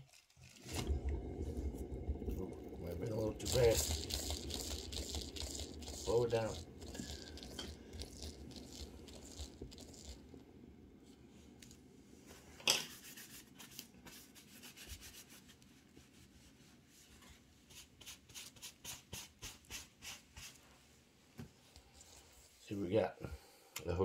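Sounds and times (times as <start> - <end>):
spinning turntable rubbing and rumble: 0.4 - 11.3.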